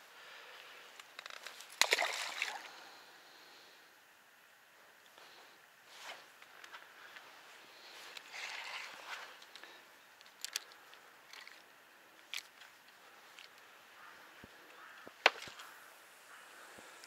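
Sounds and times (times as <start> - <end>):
faint hiss: 0.0 - 17.0.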